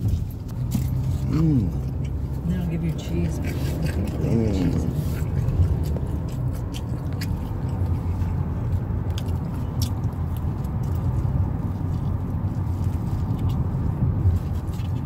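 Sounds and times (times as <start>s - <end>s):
car driving rumble: 0.0s - 15.0s
person chewing food: 0.0s - 15.0s.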